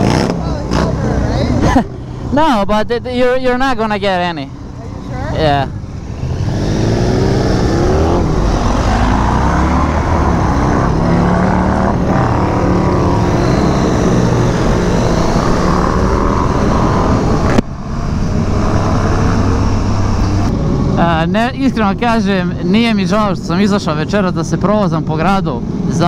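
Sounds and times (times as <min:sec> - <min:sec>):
motorcycle engine revving: 0:00.0 - 0:01.6, 0:04.6 - 0:21.3
wind noise: 0:05.6 - 0:22.6.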